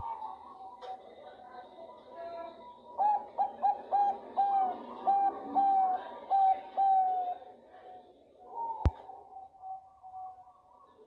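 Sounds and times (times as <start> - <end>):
dove cooing: 0.0 - 2.1, 2.8 - 11.0.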